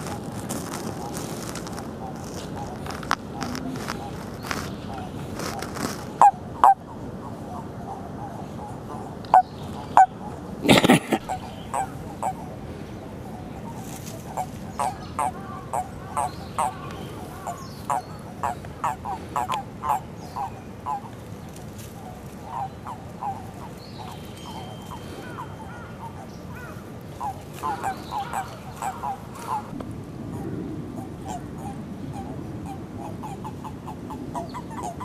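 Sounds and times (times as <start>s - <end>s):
toads croaking: 0.0s - 12.6s, 14.2s - 21.2s, 22.4s - 35.0s.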